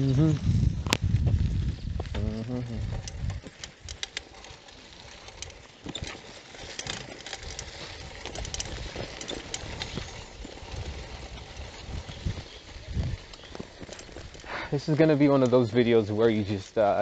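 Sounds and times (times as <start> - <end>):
bicycle tyres on dirt road: 0.0 - 17.0.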